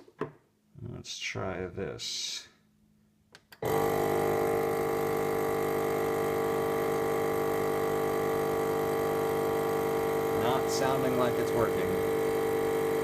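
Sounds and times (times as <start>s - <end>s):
vacuum pump motor droning: 3.6s - 13.0s.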